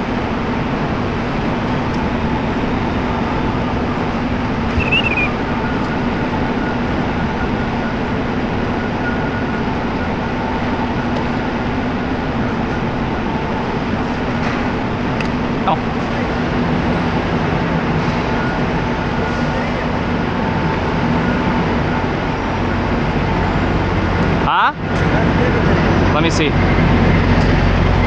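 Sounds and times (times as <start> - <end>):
high squeak: 4.7 - 5.4.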